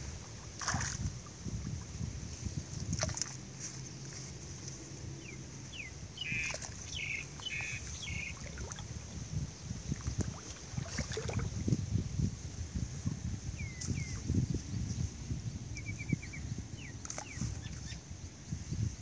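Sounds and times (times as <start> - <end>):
muddy water sloshing: 0.0 - 4.6, 6.2 - 11.8, 17.0 - 18.0
bird chirping: 5.2 - 8.4.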